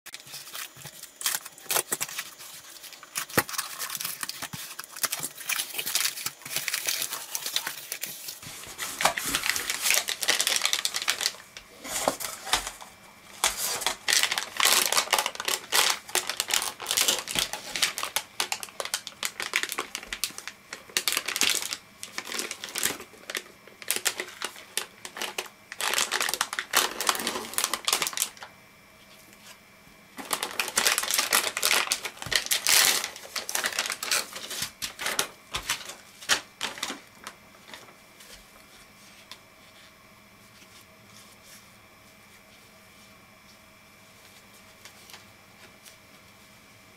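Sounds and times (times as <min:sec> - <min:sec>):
plastic bag crinkling: 0:00.1 - 0:28.5, 0:30.2 - 0:38.4.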